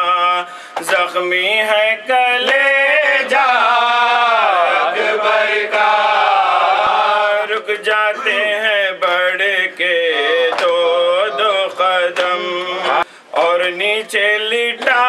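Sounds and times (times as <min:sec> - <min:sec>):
man chanting into a microphone: 0:00.0 - 0:04.7, 0:07.3 - 0:15.0.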